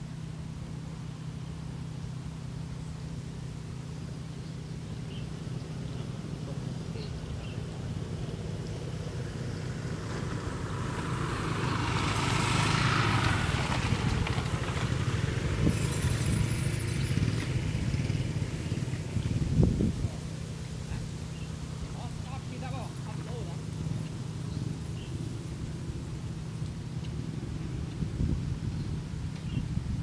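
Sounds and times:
engine humming: 0.0s - 30.0s
vehicle passing by: 0.0s - 30.0s.

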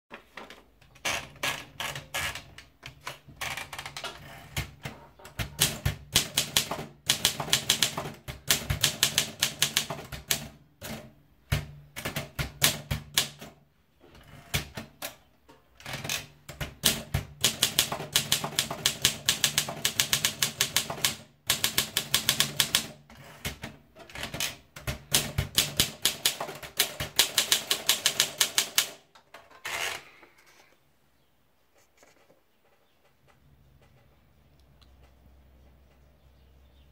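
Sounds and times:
typewriter keystrokes clacking: 4.6s - 13.6s, 15.9s - 29.1s.

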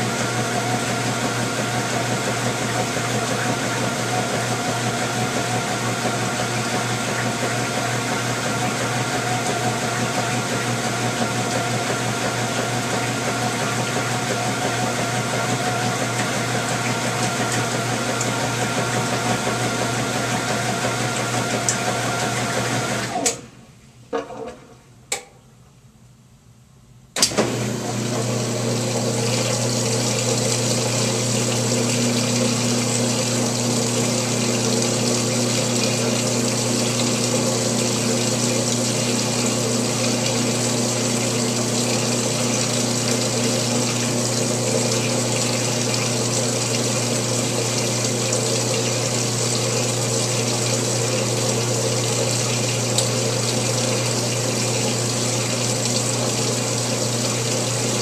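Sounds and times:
water rushing into washing machine: 0.0s - 23.6s, 27.2s - 58.0s.

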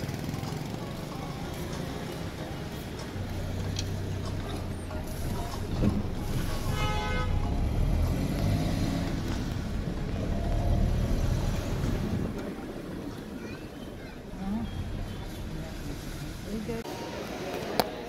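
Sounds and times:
vehicle engines running: 0.0s - 18.0s
vehicles passing: 0.0s - 18.0s
car horn: 6.4s - 7.9s.

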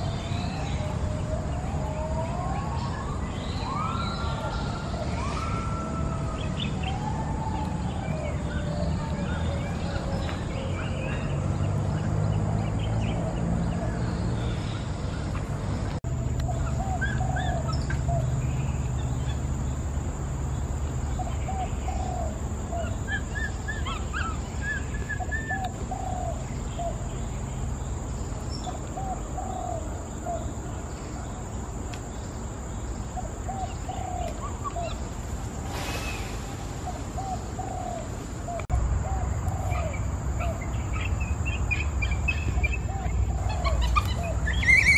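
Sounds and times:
low outdoor rumble: 0.0s - 44.9s.

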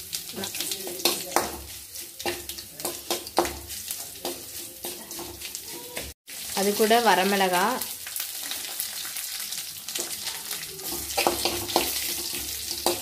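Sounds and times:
food sizzling in hot oil: 0.0s - 13.0s
metal spatula scraping pan: 0.5s - 6.2s, 10.8s - 13.0s.

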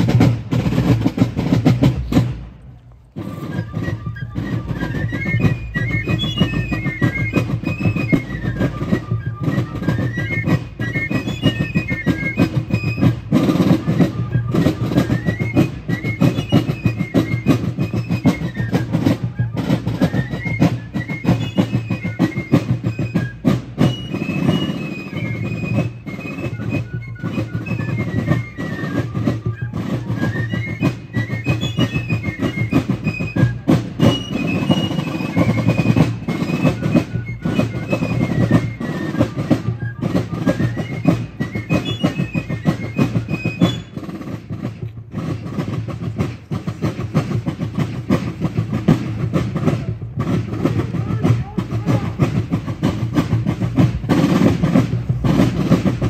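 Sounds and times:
rapid drum strokes: 0.0s - 10.6s, 29.2s - 56.0s.

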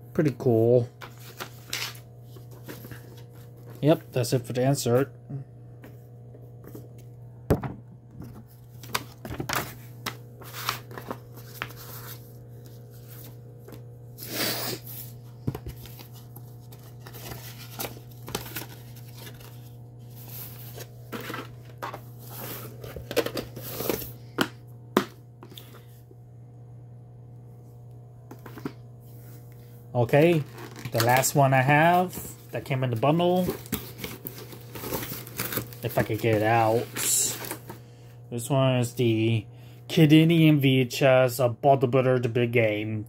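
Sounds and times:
steady low hum: 0.0s - 43.0s
paper rustling and crinkling: 1.0s - 4.0s, 8.3s - 14.0s, 14.8s - 24.1s, 30.0s - 37.8s.

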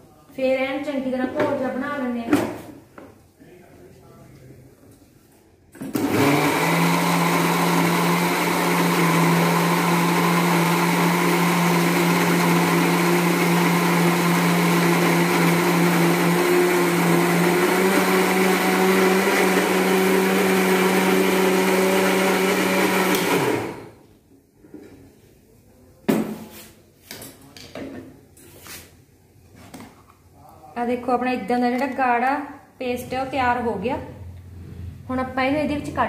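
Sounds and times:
mixer grinder motor whine: 5.9s - 24.0s.

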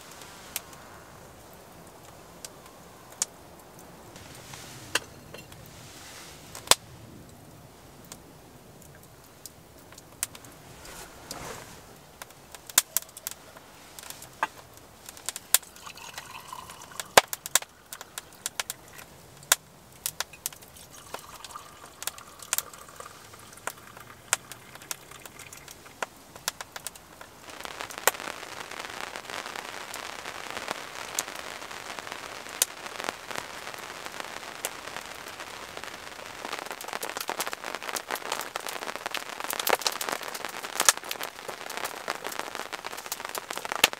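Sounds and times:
rain hissing: 0.0s - 43.9s
wood fire crackling and popping: 0.0s - 43.9s
tea pouring into a mug: 15.6s - 19.1s, 20.6s - 26.0s.

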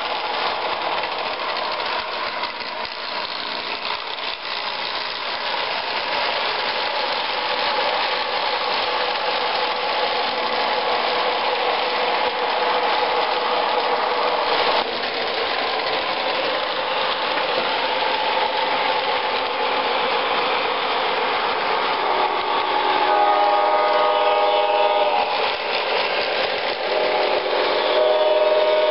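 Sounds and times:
model train rolling rumble: 0.0s - 28.9s
model train horn: 21.9s - 25.5s, 26.8s - 28.9s.

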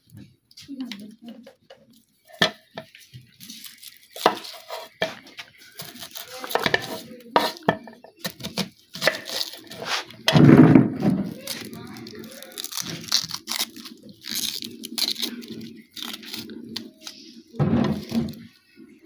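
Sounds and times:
onion skin crackling: 2.0s - 18.5s
heavy thump: 10.3s - 11.2s.

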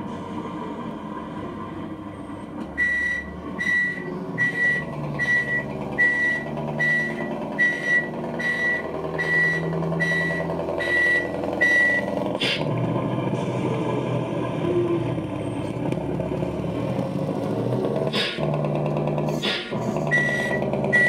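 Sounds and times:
simulated diesel engine running: 0.0s - 21.0s
electronic reversing beeps: 2.8s - 12.2s, 20.0s - 21.0s.

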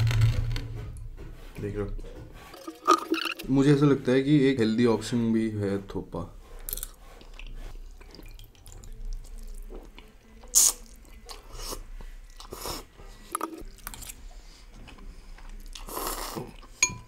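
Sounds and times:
slurping noodles: 6.5s - 9.6s, 10.4s - 16.8s.

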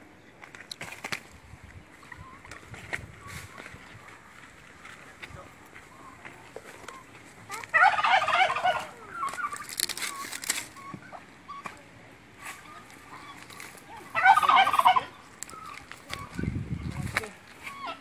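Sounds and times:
higher bird calls: 1.8s - 11.8s, 12.4s - 18.0s
turkey gobbling: 5.8s - 11.8s, 12.4s - 16.6s, 17.6s - 18.0s.

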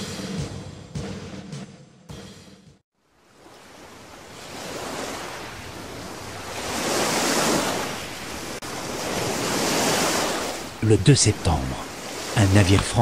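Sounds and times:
sea surf waves: 3.0s - 13.0s.

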